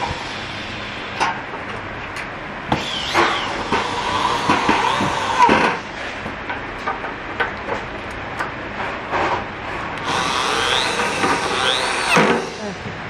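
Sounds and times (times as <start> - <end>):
electric drill boring: 2.8 - 5.8, 10.0 - 12.7.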